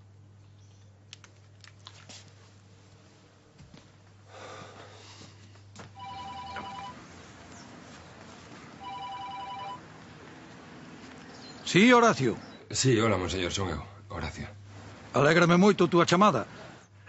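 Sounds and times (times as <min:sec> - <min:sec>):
two-tone phone ringing: 0:06.0 - 0:07.0, 0:08.8 - 0:09.9.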